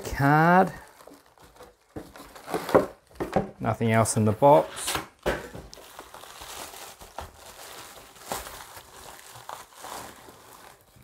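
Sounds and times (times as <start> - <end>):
plastic bag crinkling: 0.0 - 3.4, 5.6 - 11.0.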